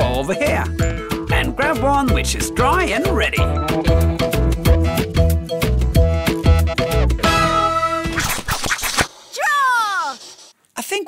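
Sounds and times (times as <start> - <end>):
background music with beat: 0.0 - 8.2.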